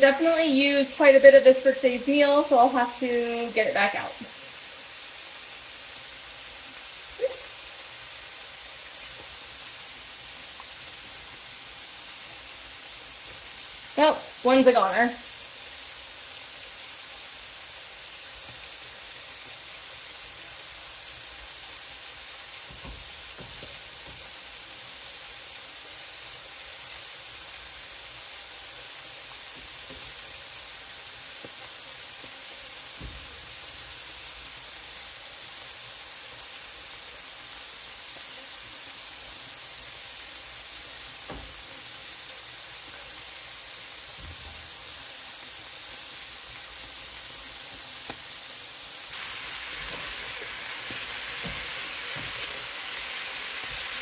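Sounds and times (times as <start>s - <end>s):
food sizzling in a frying pan: 0.0s - 54.0s.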